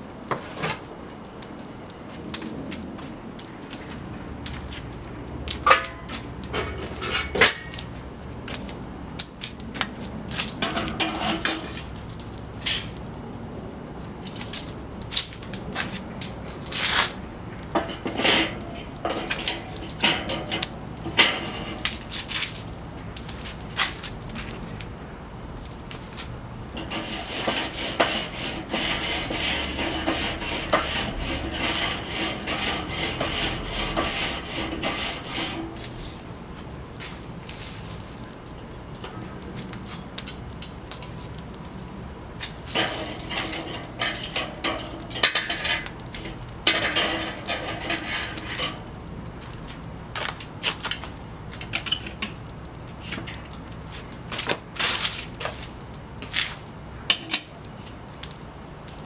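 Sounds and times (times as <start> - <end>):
metal tongs scraping grill grate: 5.6 - 7.9, 10.3 - 13.0, 14.2 - 24.8, 26.1 - 36.3, 42.4 - 49.6, 50.2 - 58.3.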